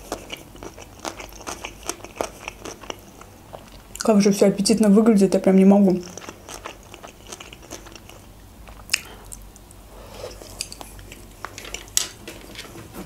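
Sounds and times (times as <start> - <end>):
person chewing food: 0.0 - 4.0, 6.0 - 12.2.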